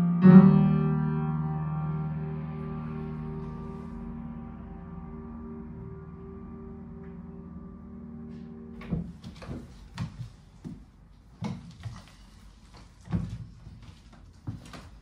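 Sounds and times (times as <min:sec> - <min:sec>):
piano chord ringing: 0:00.0 - 0:09.8.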